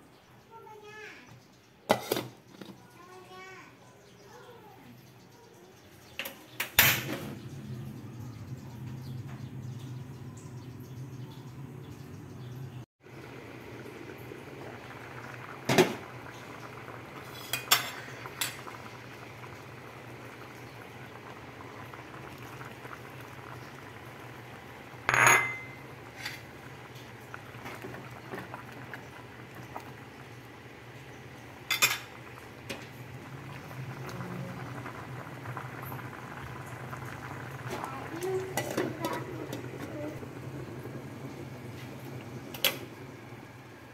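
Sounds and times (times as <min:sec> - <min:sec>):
pot boiling with bubbling hiss: 0:00.0 - 0:43.9
metal lid and utensils clinking: 0:25.1 - 0:26.4.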